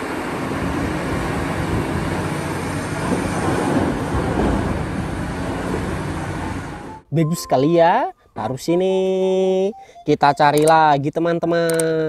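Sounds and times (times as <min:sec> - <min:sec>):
excavator engine and hydraulics: 0:00.0 - 0:07.1.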